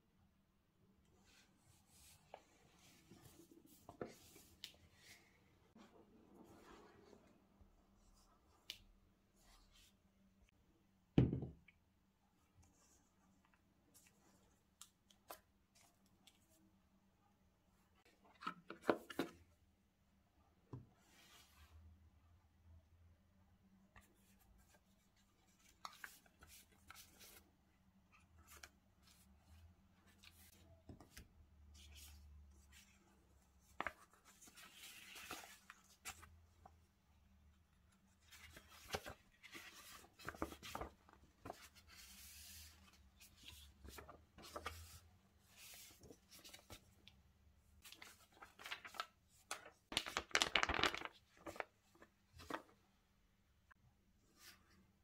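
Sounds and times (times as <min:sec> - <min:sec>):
paper and card rustling: 0:38.2 - 0:46.9, 0:47.8 - 0:52.8.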